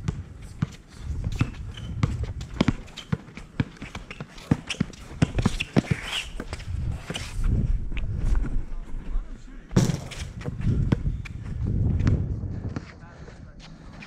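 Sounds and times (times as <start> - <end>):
basketball bouncing: 0.0 - 5.6, 9.8 - 11.0.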